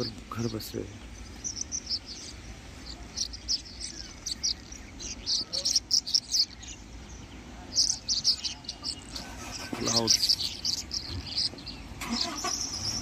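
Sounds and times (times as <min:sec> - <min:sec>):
low steady rumble: 0:00.0 - 0:13.0
high-pitched chirps: 0:01.2 - 0:06.8.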